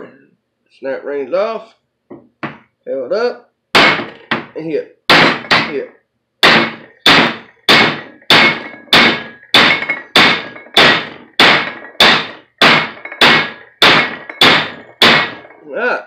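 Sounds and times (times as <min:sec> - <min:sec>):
hammer striking steel: 0:03.8 - 0:04.5, 0:05.1 - 0:05.8, 0:06.4 - 0:15.6.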